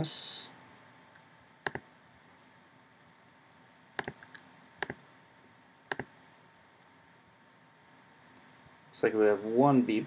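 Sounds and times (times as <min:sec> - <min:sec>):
faint steady hum: 0:00.0 - 0:10.0
computer mouse clicking: 0:01.6 - 0:01.9, 0:04.0 - 0:05.0, 0:05.9 - 0:06.1.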